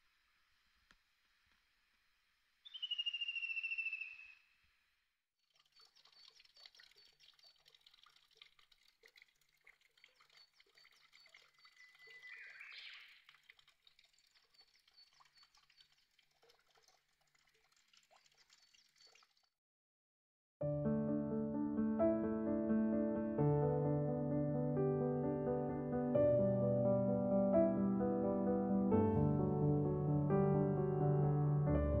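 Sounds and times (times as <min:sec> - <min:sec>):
bird trill: 0:02.6 - 0:04.5, 0:10.3 - 0:13.2
distant bird calls: 0:02.6 - 0:04.5, 0:10.2 - 0:13.2.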